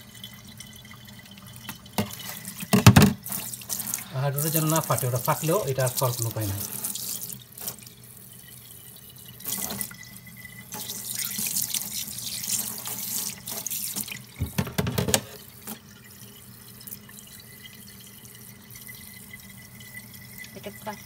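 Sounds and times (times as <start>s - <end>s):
tap running into metal sink: 1.7s - 3.4s, 14.4s - 15.8s.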